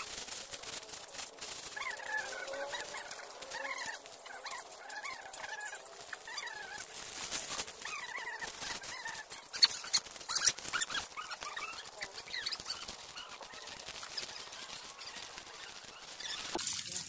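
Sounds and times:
animal calls: 0:01.7 - 0:16.5
water splashing and pouring: 0:16.3 - 0:17.0.

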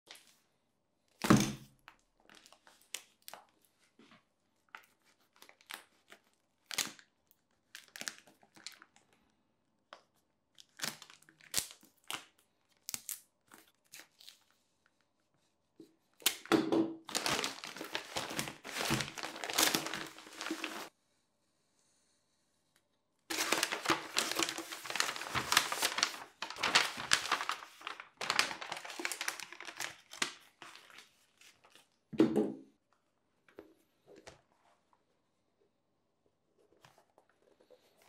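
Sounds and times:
packaging crinkling and rustling: 0:04.7 - 0:09.1, 0:17.0 - 0:20.9, 0:23.3 - 0:32.0
plastic wrap crinkling: 0:17.0 - 0:20.9, 0:23.3 - 0:32.0.

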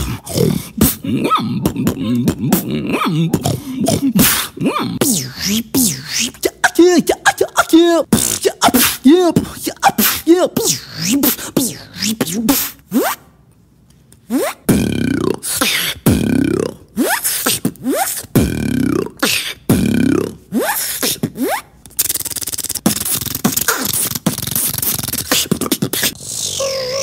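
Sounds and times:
beatbox percussion: 0:00.0 - 0:13.3, 0:14.2 - 0:27.0
beatboxer vocal pitch sweeps: 0:00.0 - 0:13.3, 0:14.2 - 0:27.0
rapid mouth clicks: 0:01.6 - 0:12.6, 0:20.7 - 0:26.2.

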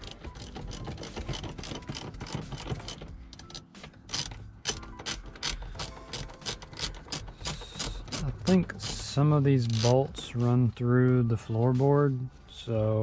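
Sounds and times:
socket ratchet clicking: 0:00.0 - 0:10.1.

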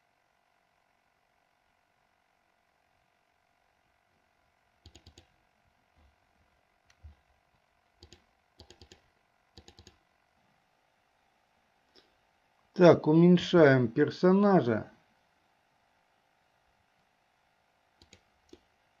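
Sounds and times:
computer mouse clicks: 0:04.8 - 0:05.4, 0:06.8 - 0:07.3, 0:08.0 - 0:10.0, 0:18.0 - 0:18.7.

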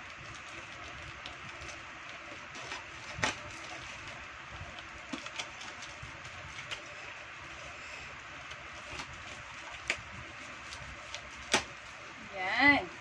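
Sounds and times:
packing tape peeling: 0:08.4 - 0:12.0.

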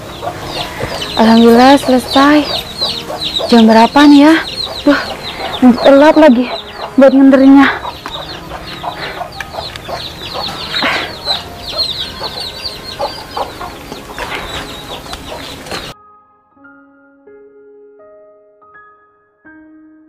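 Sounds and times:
chickens clucking: 0:00.0 - 0:16.0.

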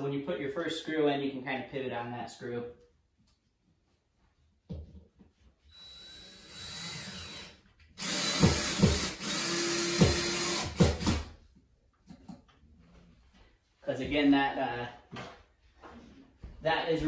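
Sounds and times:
cordless drill driving screw: 0:05.7 - 0:11.3.

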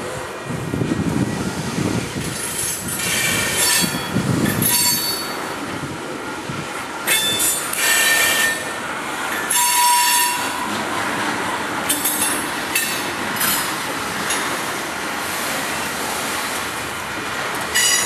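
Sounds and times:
wheels rumbling on track: 0:00.0 - 0:18.0
train wheels squealing: 0:03.0 - 0:05.5, 0:07.1 - 0:08.8, 0:09.4 - 0:10.7, 0:17.8 - 0:18.0.

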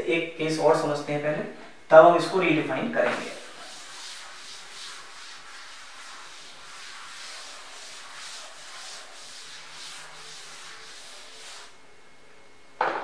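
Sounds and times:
duster rubbing on chalkboard: 0:03.0 - 0:11.8.

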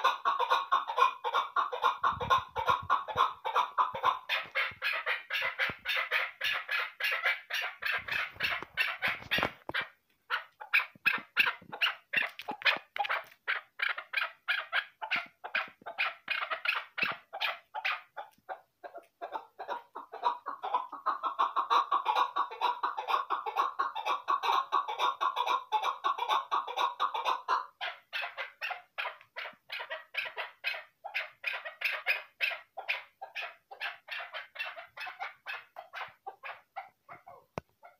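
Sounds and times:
partridge calling: 0:00.0 - 0:18.3.

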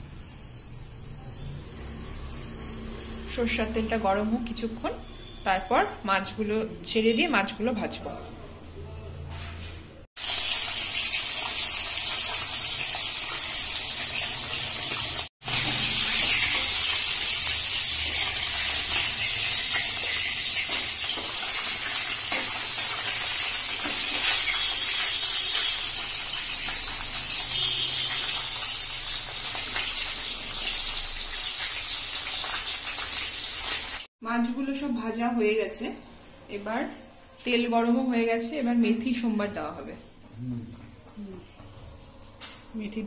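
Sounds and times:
fish sizzling in hot oil: 0:10.2 - 0:34.1.

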